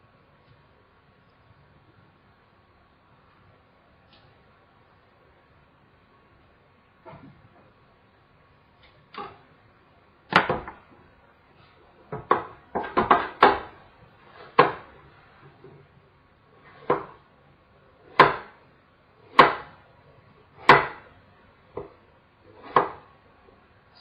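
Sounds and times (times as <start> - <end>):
knife cutting apple: 21.8 - 23.1.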